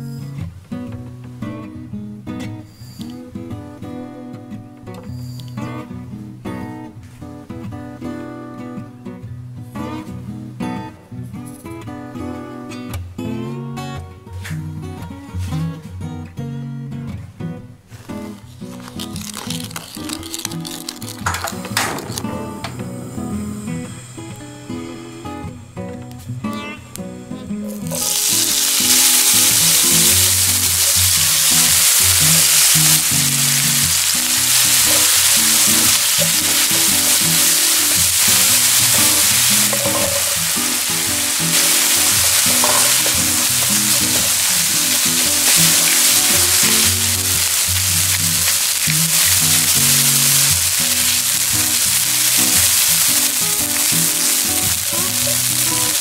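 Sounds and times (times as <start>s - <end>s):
meat sizzling in frying pan: 18.7s - 23.8s, 27.6s - 56.0s.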